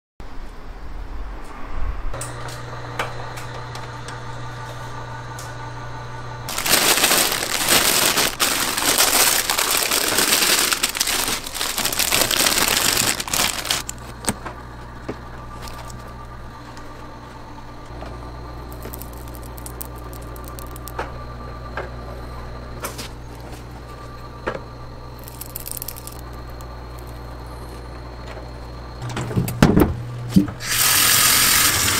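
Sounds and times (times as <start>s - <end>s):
steady low hum: 0.3s - 30.6s
plastic bag crinkling: 6.5s - 14.4s, 15.6s - 16.0s, 18.7s - 21.0s, 25.2s - 27.3s.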